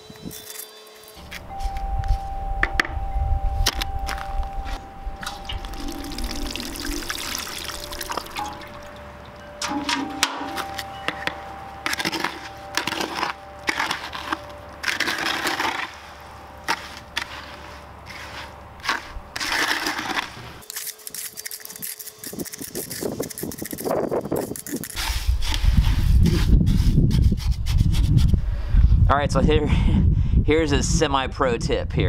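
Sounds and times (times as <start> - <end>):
low rumble: 1.2 - 9.7
trowel scraping cement mix: 11.8 - 28.4.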